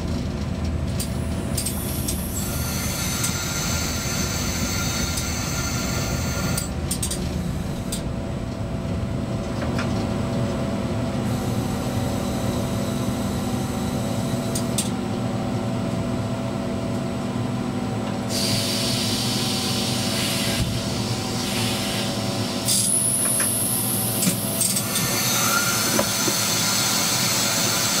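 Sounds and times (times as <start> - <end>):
locomotive electrical hum: 0.0 - 28.0
wheel and rail noise: 21.4 - 28.0
high wheel squeal: 24.8 - 28.0.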